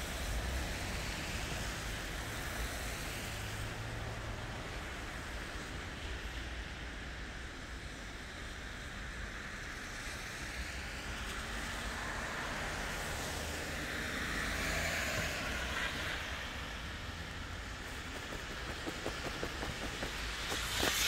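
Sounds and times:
passing vehicle tyre hiss: 0:09.8 - 0:21.0
low traffic rumble: 0:10.8 - 0:21.0.

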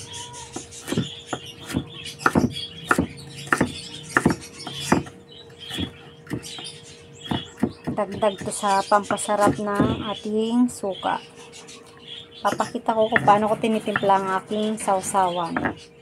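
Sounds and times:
knife chopping on wooden board: 0:00.6 - 0:10.1, 0:12.5 - 0:14.2.

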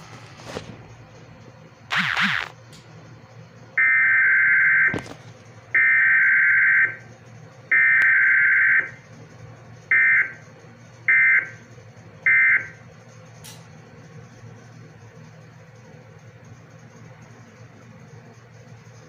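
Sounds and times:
digital data tone bursts: 0:01.9 - 0:02.6.

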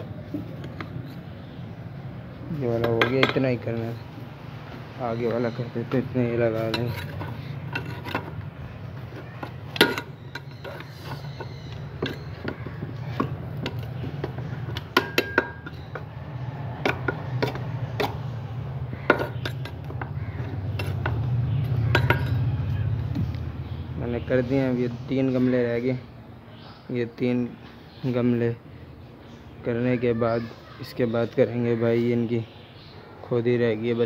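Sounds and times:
metal tool scraping soil: 0:06.5 - 0:08.4, 0:09.0 - 0:12.4.

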